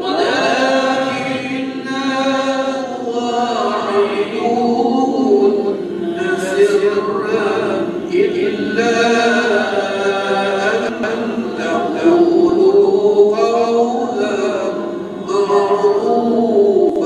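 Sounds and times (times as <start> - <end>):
man chanting melodically: 0.0 - 17.0.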